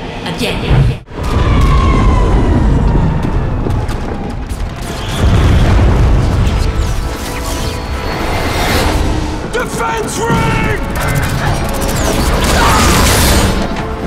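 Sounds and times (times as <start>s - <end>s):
deep booming explosions: 0.7s - 7.2s
background music: 4.5s - 14.0s.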